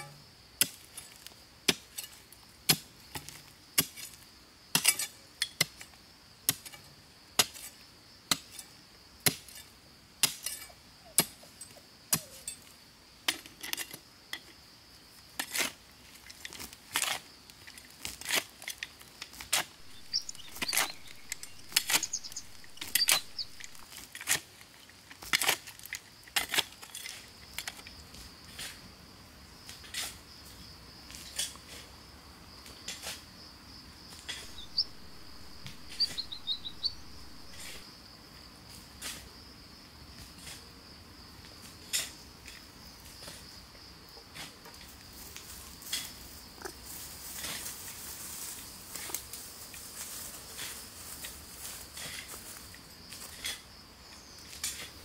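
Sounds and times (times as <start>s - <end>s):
bird chirps: 19.8s - 23.8s, 34.3s - 37.8s
high insect drone: 19.8s - 24.0s, 33.2s - 40.0s.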